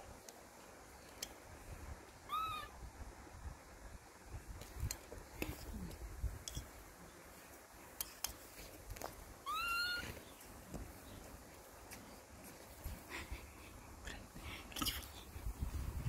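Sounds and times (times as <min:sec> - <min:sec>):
otter high call: 0:02.2 - 0:02.8.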